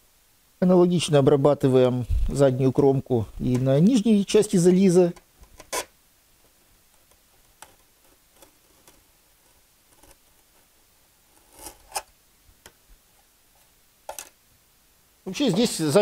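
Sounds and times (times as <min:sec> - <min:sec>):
craft knife scraping foam: 0:11.3 - 0:12.0.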